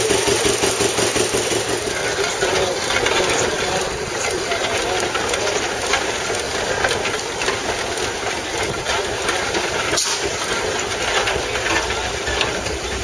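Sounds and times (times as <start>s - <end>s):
steam traction engine running: 0.0s - 13.0s.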